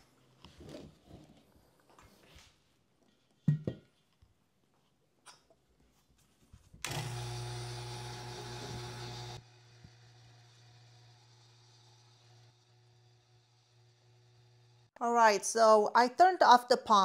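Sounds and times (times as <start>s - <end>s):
vacuum pump humming and hissing: 6.8s - 12.4s.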